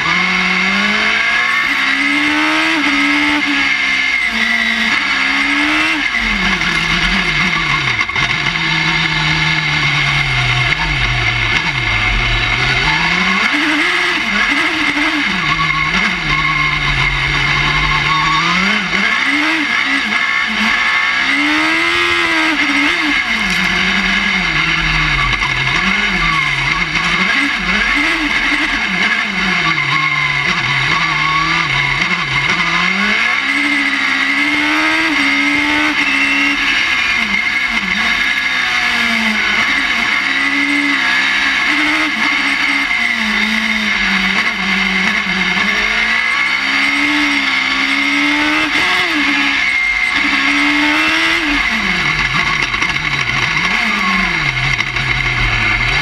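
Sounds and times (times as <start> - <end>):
motorcycle engine revving through gears: 0.0 - 56.0
steady high whine: 4.1 - 20.8.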